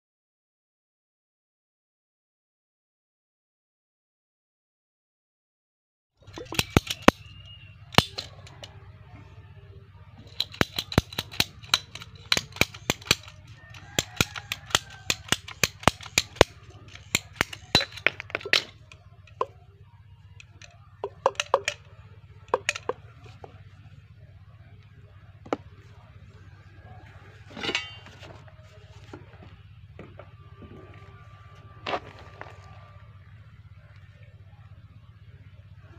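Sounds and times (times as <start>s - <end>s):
plastic fittings knocking: 6.3s - 7.2s, 21.0s - 21.8s, 22.5s - 23.5s
pipe cutter ratchet clicking: 6.3s - 8.6s, 10.3s - 19.5s, 20.6s - 21.8s, 22.5s - 23.0s.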